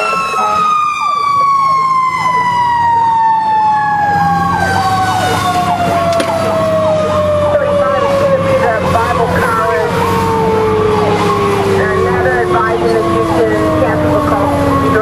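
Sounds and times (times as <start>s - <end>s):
electronic siren sweeping: 0.0s - 15.0s
mechanical siren winding down: 0.0s - 15.0s
truck engine humming: 0.0s - 15.0s.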